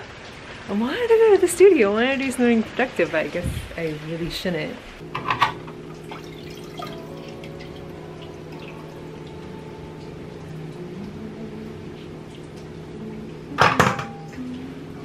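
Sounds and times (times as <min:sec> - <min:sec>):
steady low hum: 0:05.0 - 0:15.0
liquid dripping and splashing into pot: 0:05.1 - 0:09.3.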